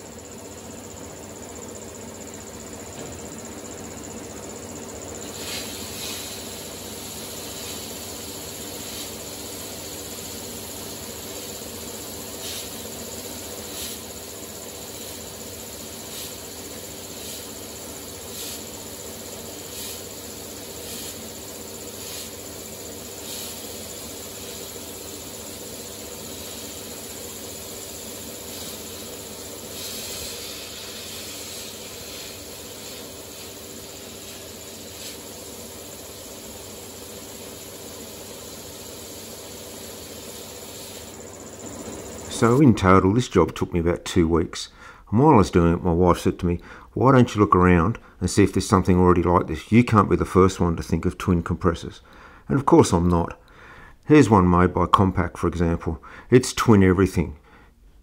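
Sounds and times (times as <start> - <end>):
sandblaster hissing air and grit: 5.1 - 42.7.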